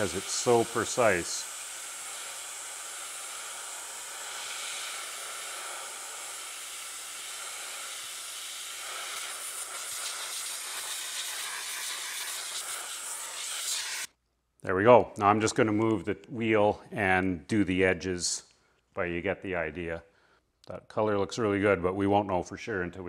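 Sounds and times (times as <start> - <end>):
airbrush spraying hiss: 0.0 - 14.1.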